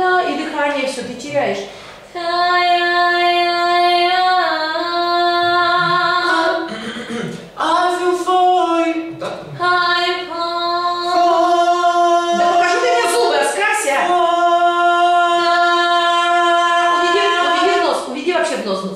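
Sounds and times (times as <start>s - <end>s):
person singing long notes: 2.2s - 6.9s, 7.6s - 13.4s, 14.0s - 17.9s.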